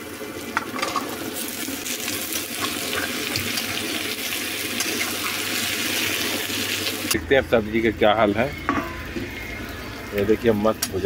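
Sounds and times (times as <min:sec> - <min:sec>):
vegetables sizzling in hot oil: 0:00.0 - 0:07.2.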